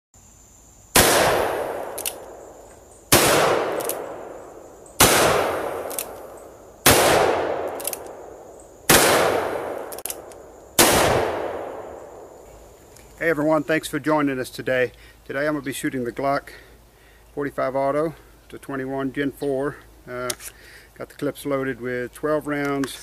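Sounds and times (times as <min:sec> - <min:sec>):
pistol shots echoing: 0:01.0 - 0:02.5, 0:03.1 - 0:12.3.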